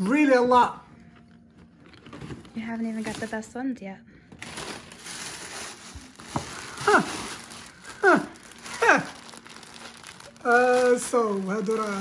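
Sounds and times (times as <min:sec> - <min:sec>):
plastic bag rustling: 0:01.6 - 0:03.6, 0:04.3 - 0:12.0
tissue paper rustling: 0:04.4 - 0:12.0.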